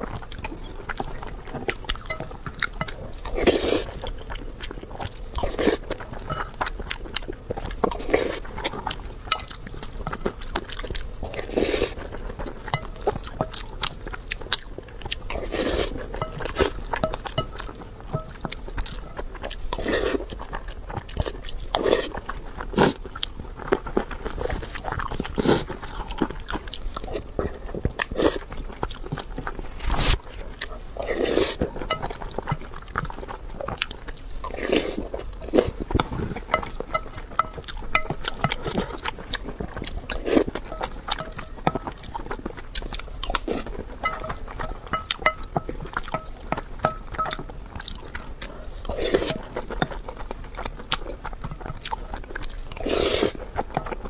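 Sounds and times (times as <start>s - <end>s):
chewing: 0.0s - 54.0s
wooden spoon scraping glass bowl: 43.6s - 47.4s.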